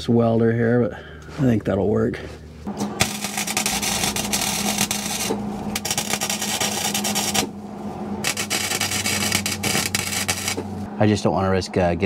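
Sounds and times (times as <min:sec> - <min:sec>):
steady hum: 0:00.0 - 0:12.0
welding arc crackling: 0:02.9 - 0:07.6, 0:08.2 - 0:10.8.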